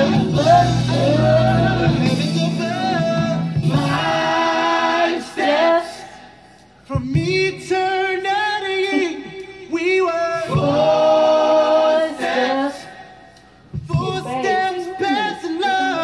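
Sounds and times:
people singing: 0.0s - 16.0s.

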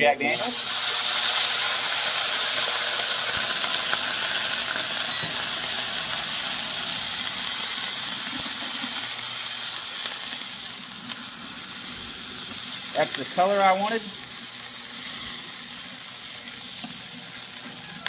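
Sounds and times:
liquid sizzling in frying pan: 0.3s - 18.0s.

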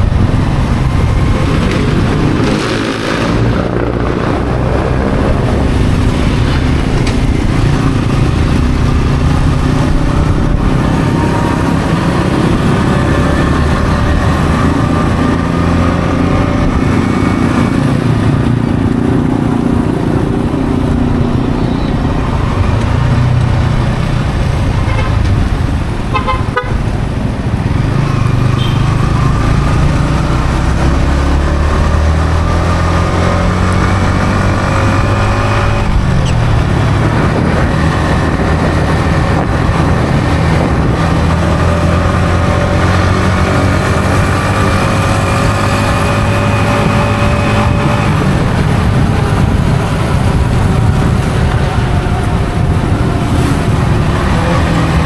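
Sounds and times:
motorcycle engine while riding: 0.0s - 55.0s
horn toot: 26.1s - 26.8s, 46.0s - 48.4s.

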